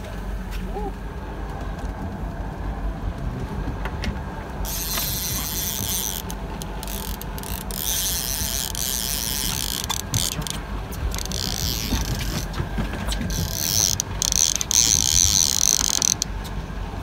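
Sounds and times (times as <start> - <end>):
boat engine humming: 0.0 - 17.0
fishing reel ratchet buzzing: 4.6 - 12.5, 13.3 - 16.3.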